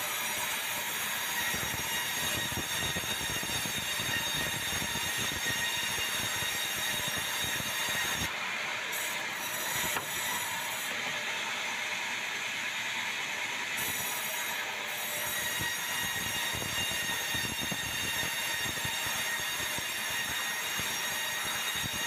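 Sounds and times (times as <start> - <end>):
band saw whining and cutting: 0.0 - 22.0.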